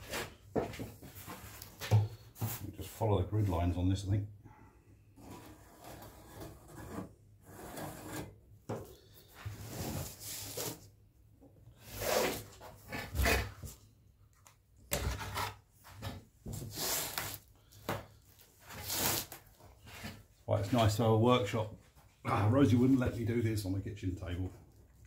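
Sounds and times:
cardboard scraping on metal grid: 18.6s - 20.2s.

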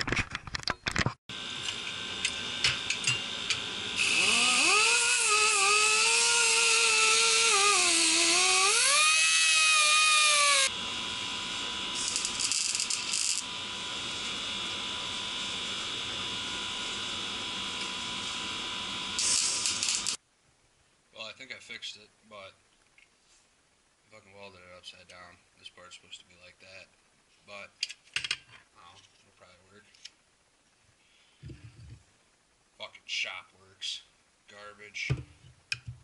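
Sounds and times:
welder arc crackling and buzzing: 1.3s - 20.2s
steady electrical hum: 1.3s - 36.0s.

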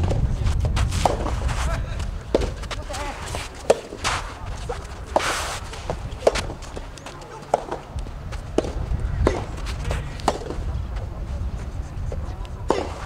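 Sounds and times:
tennis ball struck by rackets: 0.0s - 1.6s, 2.2s - 10.7s, 12.6s - 13.0s.

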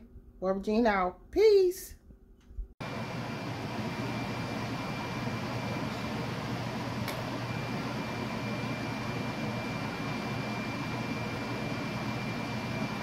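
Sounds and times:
fan whirring: 2.8s - 13.0s.

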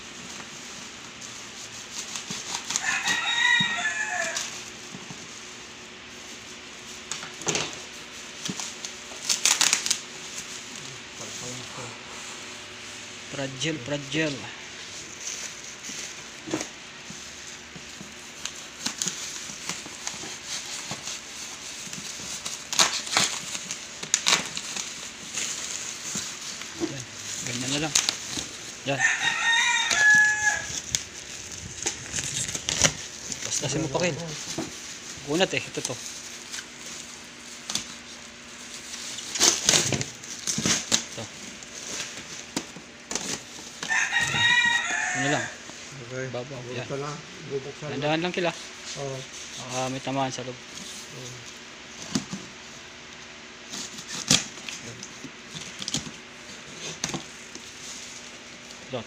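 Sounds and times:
bubble wrap rustling and crackling: 0.0s - 59.0s
rooster crowing: 2.7s - 4.6s, 28.8s - 31.4s, 43.8s - 45.7s.

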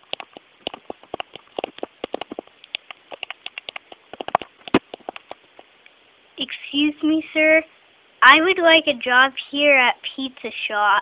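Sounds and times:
small plastic clicks and taps: 0.0s - 5.7s.

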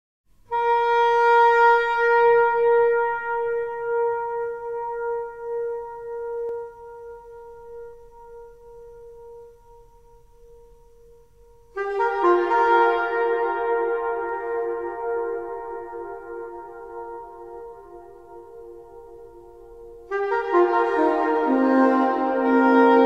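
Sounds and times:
long soprano saxophone note: 0.5s - 23.0s.

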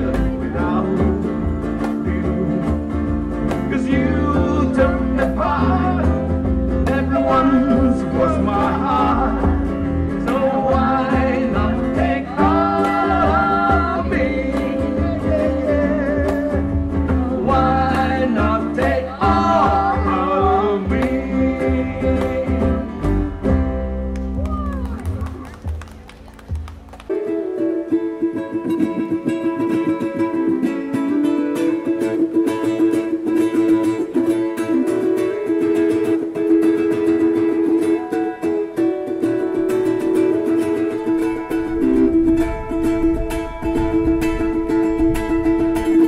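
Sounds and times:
bass line: 0.0s - 27.0s, 39.7s - 46.0s
strummed ukuleles: 0.0s - 46.0s
electric guitar: 39.2s - 46.0s.

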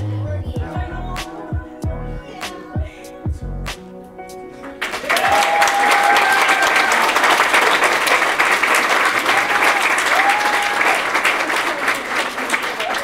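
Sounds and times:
music with low beat: 0.0s - 4.4s
audience applause: 4.8s - 13.0s.

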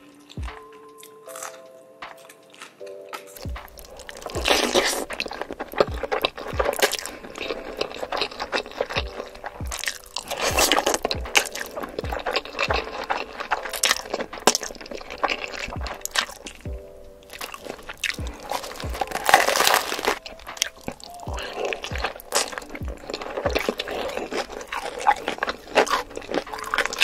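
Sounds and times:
music with thumping beat: 0.4s - 0.8s, 3.4s - 7.2s, 9.0s - 24.2s
spaghetti slurping and chewing: 1.0s - 16.6s, 17.2s - 27.0s
crunchy bites: 1.3s - 27.0s.

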